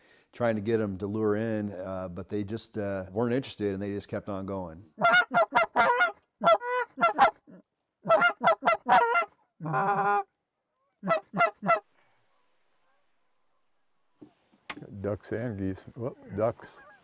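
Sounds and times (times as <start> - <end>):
goose honking: 5.0 - 10.2, 11.0 - 11.8.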